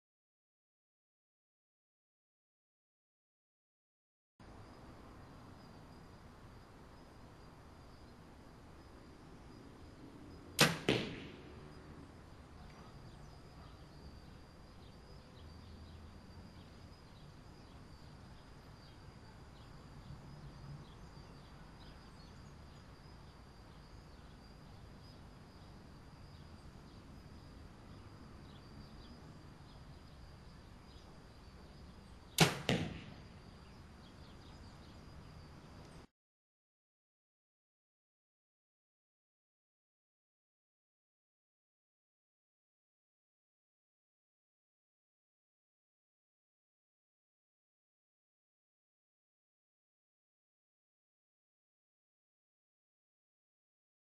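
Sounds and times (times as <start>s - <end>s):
compound bow shot crack: 10.6s - 11.6s, 32.4s - 33.4s.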